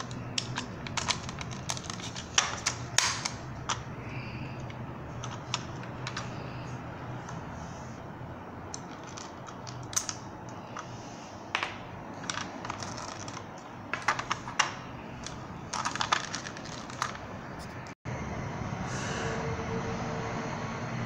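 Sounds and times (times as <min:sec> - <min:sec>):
plastic toy parts clicking: 0:00.0 - 0:03.9, 0:08.7 - 0:10.9, 0:12.1 - 0:17.3.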